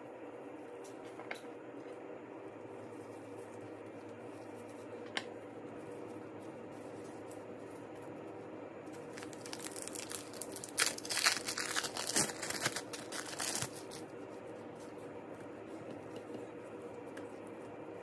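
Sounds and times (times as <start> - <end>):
plastic wrapper crinkling: 9.0 - 14.1.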